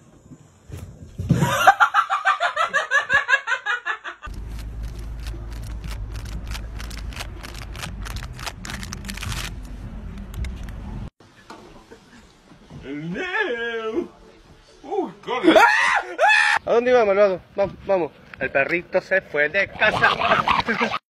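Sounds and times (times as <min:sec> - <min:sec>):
person laughing hard: 0:01.4 - 0:04.3, 0:20.0 - 0:21.0.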